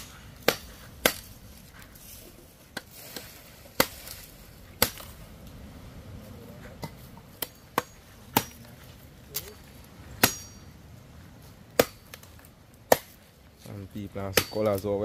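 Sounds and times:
firewood being chopped: 0.0s - 5.2s, 6.8s - 9.6s, 10.2s - 10.6s, 11.7s - 15.0s.

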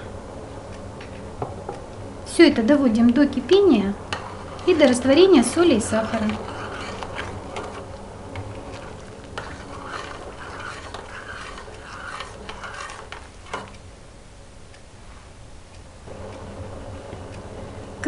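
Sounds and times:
spoon swishing through liquid: 4.1s - 13.8s.

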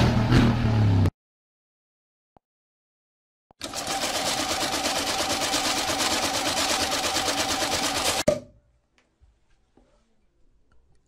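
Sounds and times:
banknote counting machine flutter: 3.6s - 8.2s.

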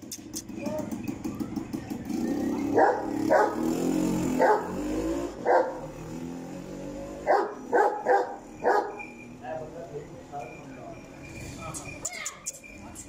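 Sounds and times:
dog barking: 2.7s - 3.7s, 4.4s - 4.8s, 5.4s - 5.9s, 7.2s - 9.2s.

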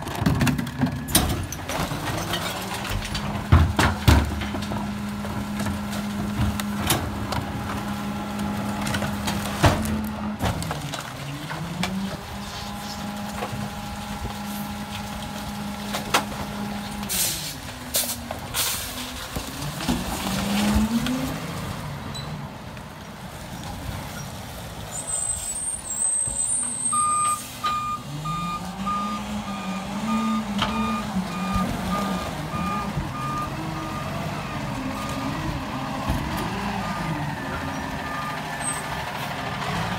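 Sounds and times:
diesel engine at raised revs: 0.0s - 39.9s
truck backup alarm beeping: 26.0s - 35.9s, 37.9s - 38.9s.

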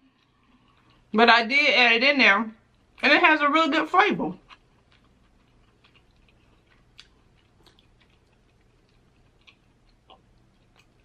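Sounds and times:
quiet chewing clicks: 0.0s - 1.1s, 4.4s - 11.0s.

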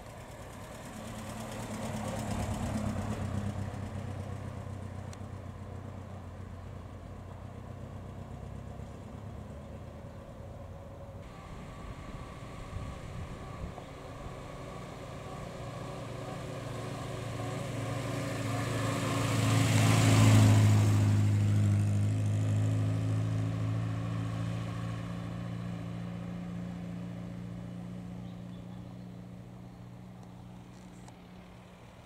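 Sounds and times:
car engine passing by: 0.0s - 32.0s.

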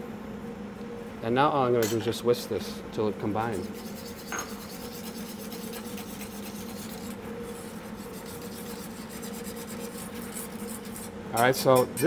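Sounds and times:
whisk scraping metal bowl: 3.4s - 12.0s.

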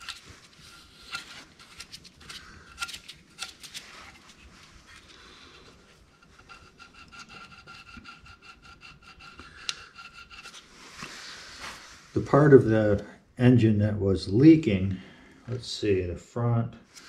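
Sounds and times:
razor blade scraping metal: 6.1s - 10.7s.

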